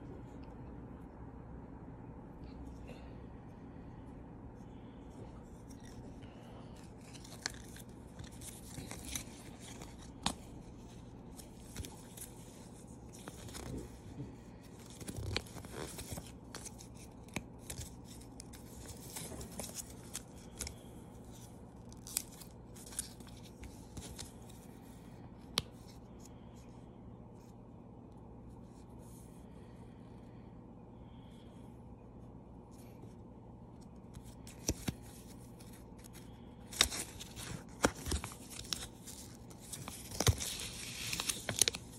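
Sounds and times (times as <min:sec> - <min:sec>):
paper rustling and crinkling: 0:05.4 - 0:25.0, 0:33.9 - 0:41.9.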